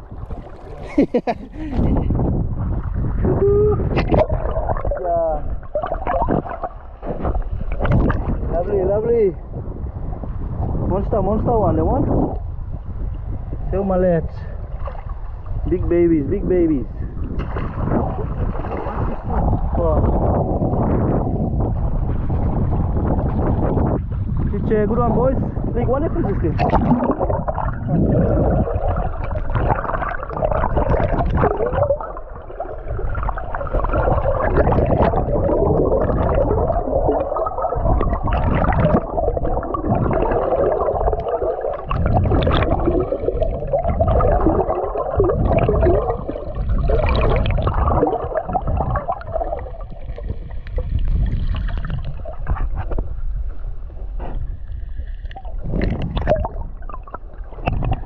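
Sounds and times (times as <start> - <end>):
low rumble: 0.0 - 58.0
underwater rushing and gurgling: 0.0 - 58.0.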